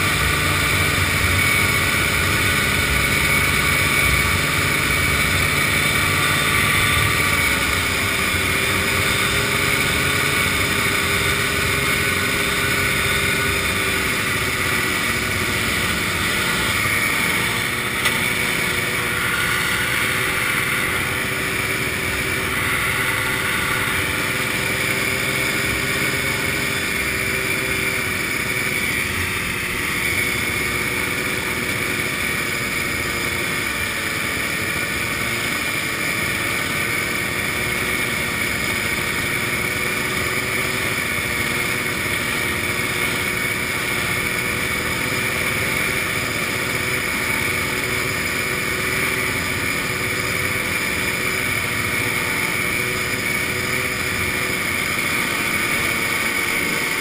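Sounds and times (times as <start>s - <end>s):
snowmobile engine running: 0.0s - 57.0s
wind and road noise: 0.0s - 57.0s.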